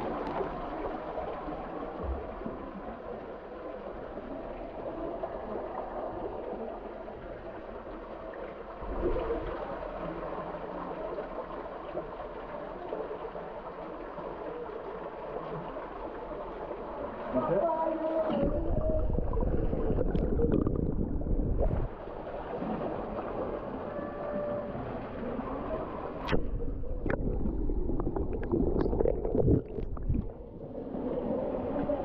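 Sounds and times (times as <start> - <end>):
water running and trickling: 27.0 - 30.5.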